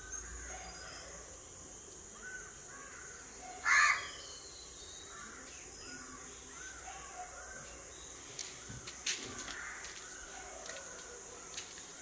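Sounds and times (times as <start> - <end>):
crow cawing: 2.8 - 4.1.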